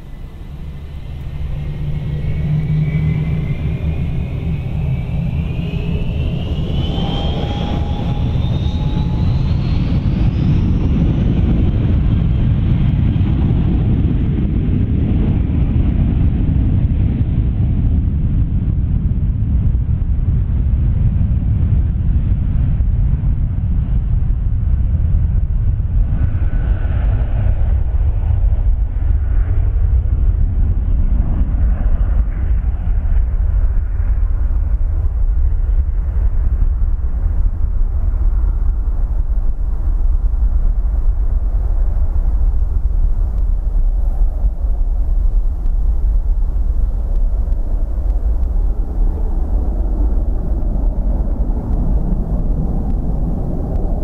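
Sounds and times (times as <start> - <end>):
jet engine whine rising: 0.0 - 13.2
low jet rumble: 0.0 - 54.0.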